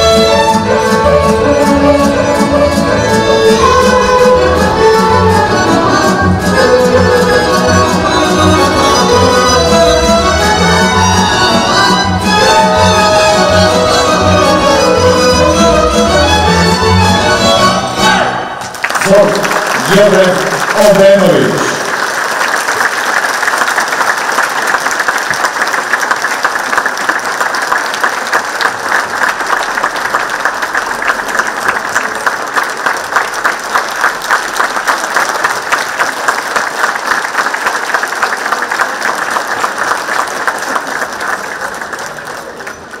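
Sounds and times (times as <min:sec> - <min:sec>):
audience applauding: 0:18.6 - 0:43.0.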